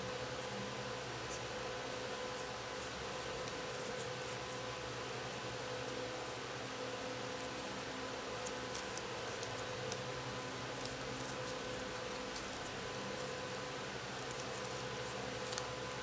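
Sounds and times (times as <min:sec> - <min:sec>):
low electrical hum: 0:00.0 - 0:16.0
paper folding and creasing: 0:14.1 - 0:16.0.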